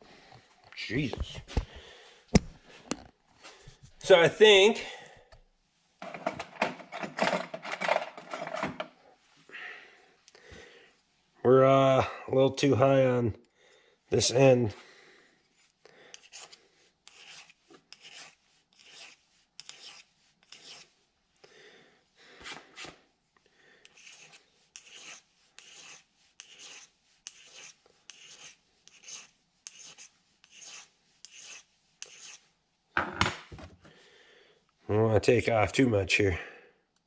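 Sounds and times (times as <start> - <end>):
hand file rasping on metal: 15.6 - 21.0, 23.8 - 32.5.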